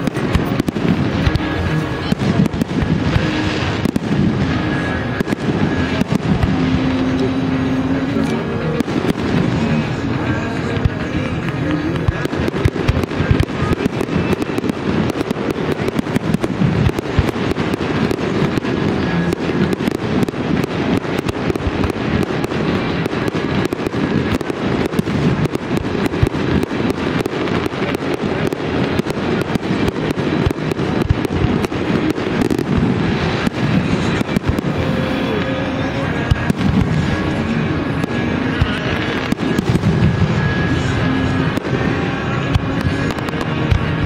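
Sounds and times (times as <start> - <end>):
fireworks bursting: 0.0 - 44.0.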